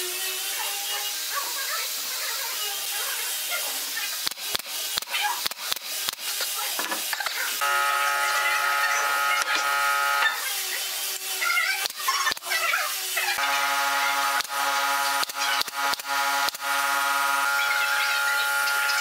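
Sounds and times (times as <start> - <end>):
steady buzzing hum: 7.6 - 10.7, 13.4 - 19.0.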